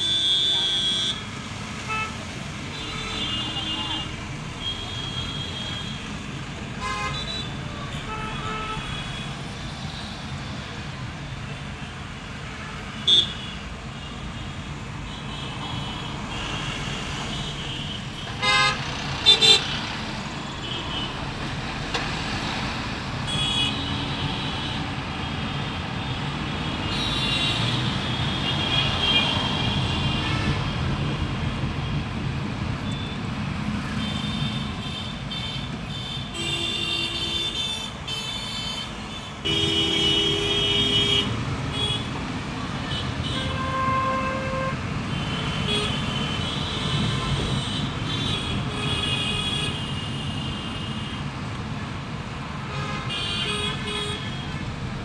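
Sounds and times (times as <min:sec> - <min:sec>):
car horns honking: 0:00.0 - 0:06.1, 0:06.7 - 0:09.4, 0:15.1 - 0:22.4, 0:23.2 - 0:30.7, 0:33.8 - 0:42.2, 0:42.8 - 0:51.2
engine and road rumble: 0:00.0 - 0:55.0.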